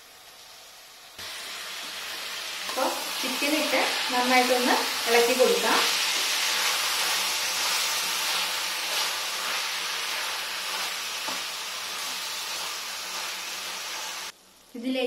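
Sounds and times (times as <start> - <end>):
food sizzling in pan: 0.0 - 15.0
spatula scraping pan: 2.7 - 14.0.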